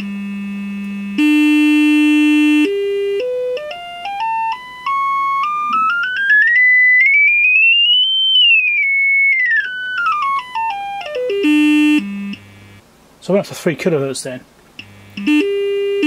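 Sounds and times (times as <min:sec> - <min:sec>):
stepped test tone sweep: 0:03.7 - 0:12.8.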